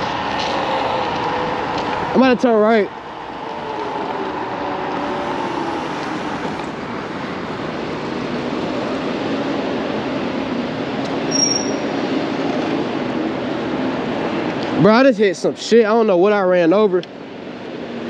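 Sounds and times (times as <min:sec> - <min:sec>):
wind and road rush: 0:00.0 - 0:18.0
brief high tone: 0:11.3 - 0:11.9.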